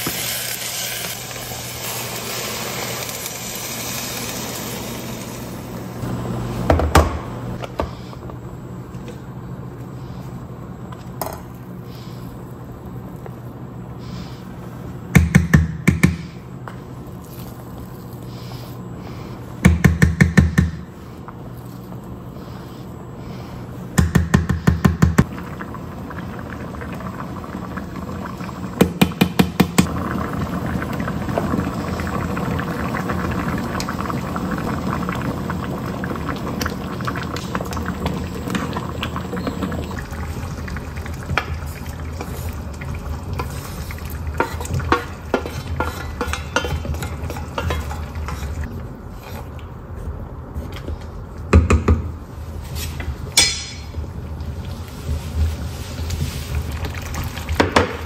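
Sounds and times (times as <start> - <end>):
stew simmering: 25.2 - 51.4, 52.3 - 58.0
wooden spoon stirring: 43.4 - 48.7.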